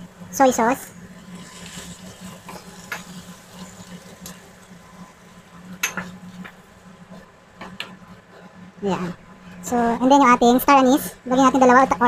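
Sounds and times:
spatula scraping frying pan: 1.2 - 4.6.

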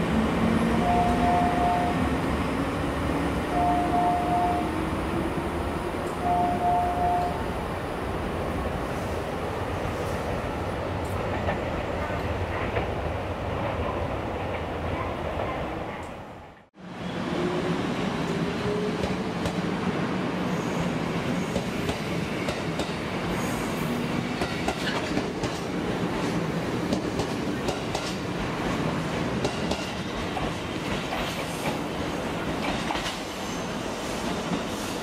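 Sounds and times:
train wheels clicking over rail joints: 24.4 - 28.3, 29.4 - 31.8.

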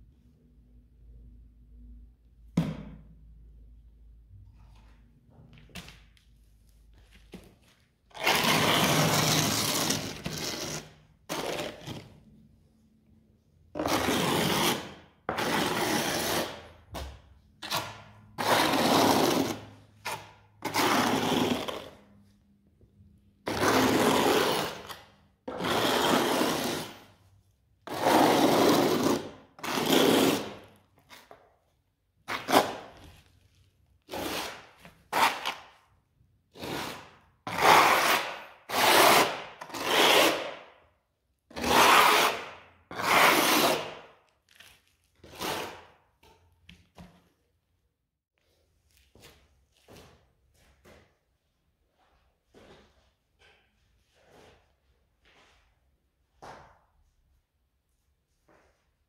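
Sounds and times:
trowel scraping adhesive on tile: 8.1 - 12.3, 13.8 - 22.1, 23.4 - 31.4, 32.2 - 33.4, 34.0 - 40.8, 41.5 - 46.8.

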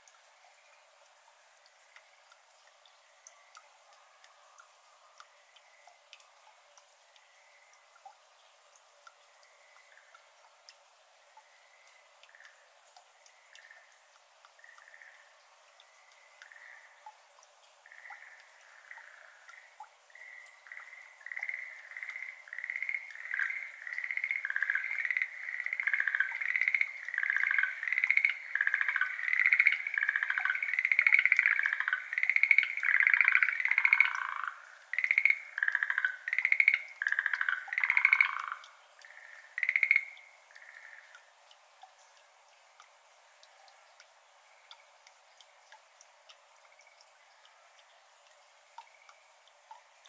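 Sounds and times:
tree frogs calling: 9.1 - 10.4, 11.3 - 41.3, 44.4 - 47.8.

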